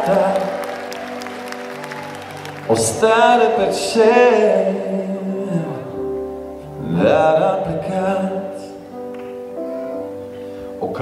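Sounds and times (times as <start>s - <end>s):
man singing: 0.0s - 1.0s, 2.6s - 9.0s, 10.8s - 11.0s
keyboard chords: 0.0s - 11.0s.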